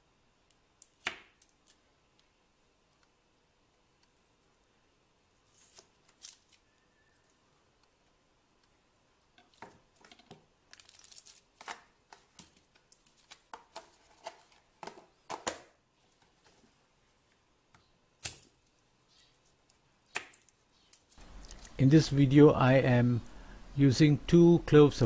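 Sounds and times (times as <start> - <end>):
foil and plastic crinkling: 10.7 - 14.6.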